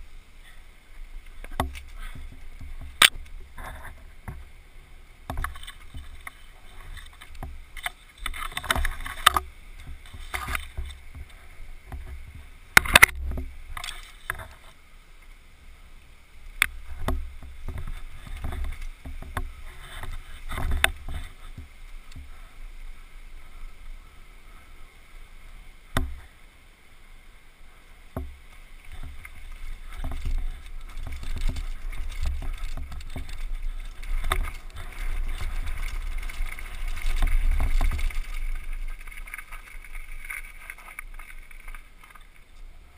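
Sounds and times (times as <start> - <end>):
mountain bike rattling over rocks: 1.2 - 14.8, 16.6 - 22.6, 28.2 - 42.9.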